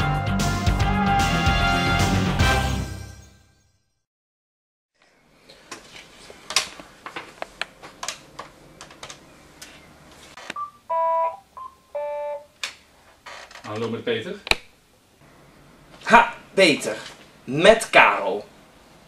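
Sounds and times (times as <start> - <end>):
electronic phone ring tone: 10.6 - 12.5.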